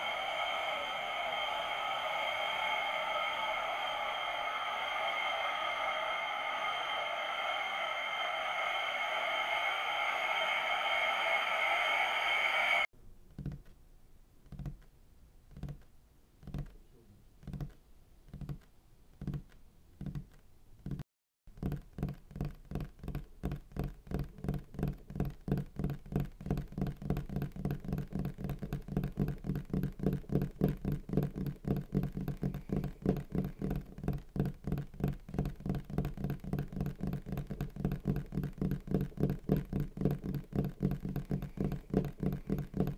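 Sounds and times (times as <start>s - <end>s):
pulsing beat: 0.0s - 12.9s, 25.5s - 42.9s
steady low hum: 0.0s - 12.9s.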